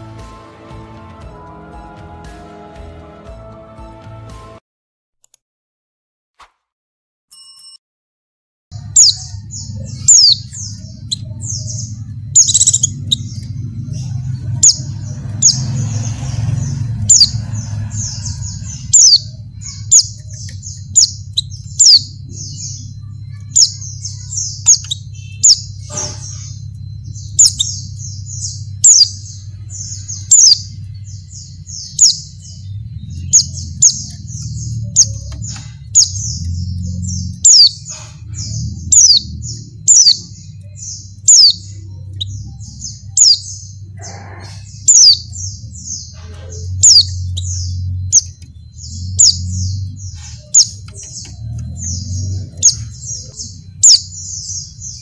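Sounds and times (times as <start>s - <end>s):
bird twittering and chirping: 8.7s - 55.0s
steady low hum: 8.7s - 55.0s.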